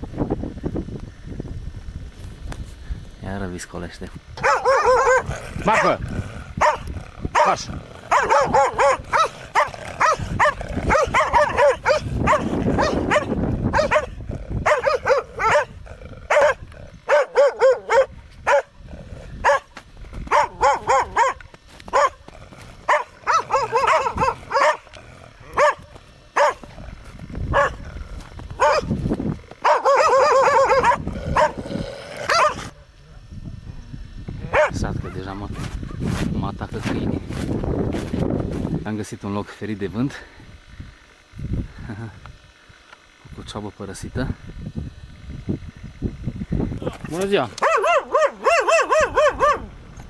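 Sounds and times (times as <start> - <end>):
dogs barking aggressively: 4.4 - 33.0, 34.4 - 36.1, 47.3 - 49.8.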